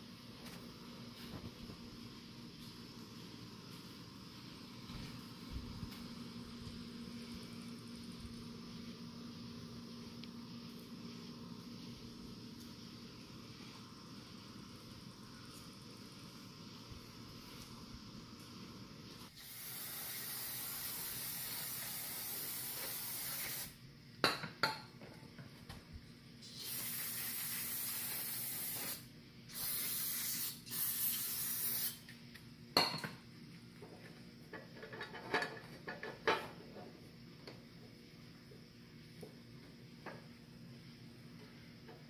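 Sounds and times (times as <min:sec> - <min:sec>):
aerosol spray hissing: 0:19.2 - 0:23.8, 0:26.4 - 0:32.1.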